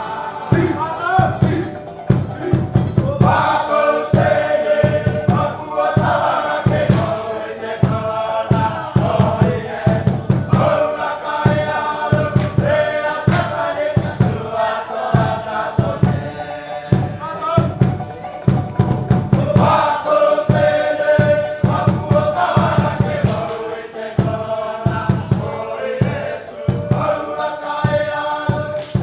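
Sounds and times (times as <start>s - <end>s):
group singing and chanting: 0.0s - 29.0s
repeating beat: 0.0s - 29.0s.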